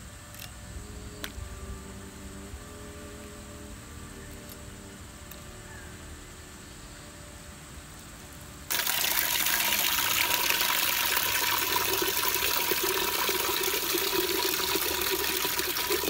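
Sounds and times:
water gushing into metal pot: 0:08.7 - 0:16.0.

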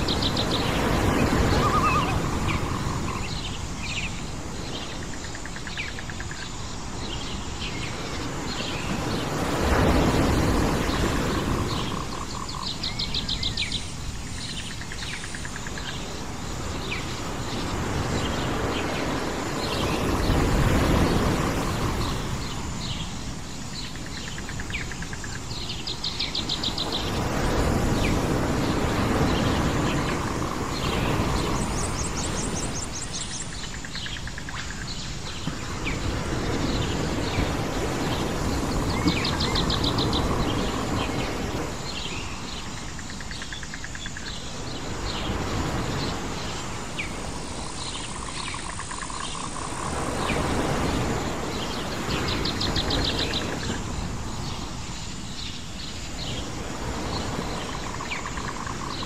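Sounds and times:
birds chirping: 0:00.0 - 0:06.0, 0:16.8 - 0:59.0
fast insect trills: 0:00.0 - 0:08.2
waves washing in: 0:00.0 - 0:59.0.

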